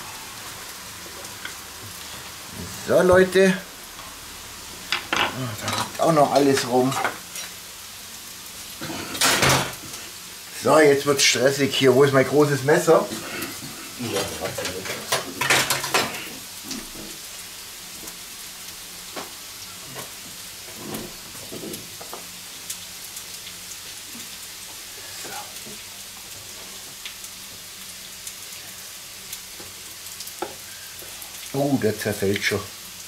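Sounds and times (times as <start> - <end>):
potatoes sizzling in a pan: 0.0 - 33.0
kitchen utensils clattering: 13.2 - 16.4.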